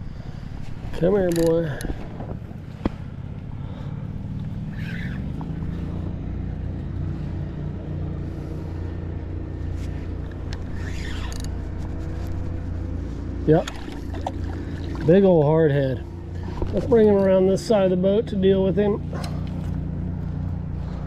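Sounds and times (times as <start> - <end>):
wind rumble on microphone: 0.0 - 3.7
fishing reel whirring: 4.7 - 6.0, 10.1 - 12.6.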